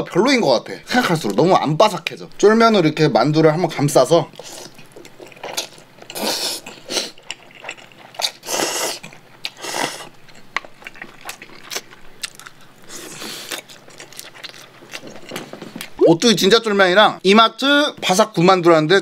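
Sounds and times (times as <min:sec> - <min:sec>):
person slurping noodles: 0:06.1 - 0:07.2, 0:08.2 - 0:10.1.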